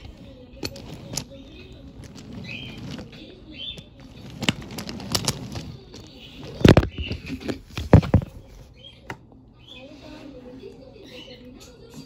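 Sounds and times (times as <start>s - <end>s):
toy train cars clacking: 0.0s - 8.2s.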